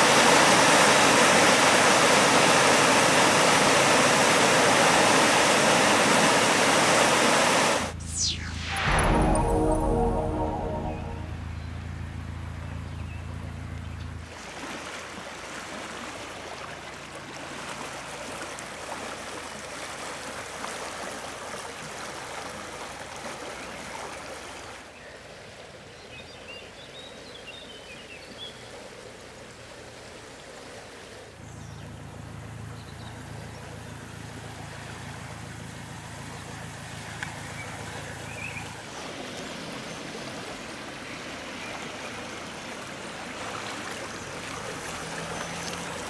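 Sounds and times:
floodwater rushing: 0.0s - 11.4s, 14.2s - 24.9s, 33.7s - 46.0s.

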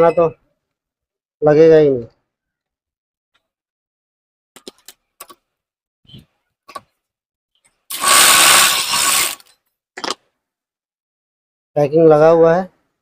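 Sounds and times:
electric impact wrench running: 7.9s - 9.4s.

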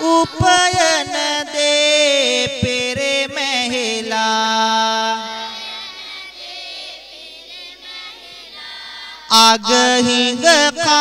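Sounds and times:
group singing along: 0.0s - 10.2s.

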